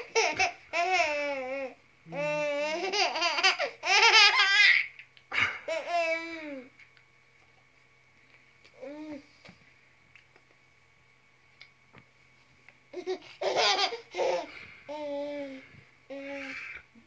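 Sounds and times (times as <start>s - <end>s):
baby laughing: 0.0s - 5.0s, 13.0s - 15.3s.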